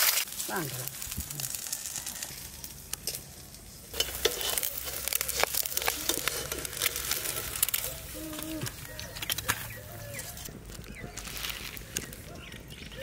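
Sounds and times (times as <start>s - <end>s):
egg frying in oil: 3.9s - 7.9s
spatula scraping a pan: 4.0s - 8.1s.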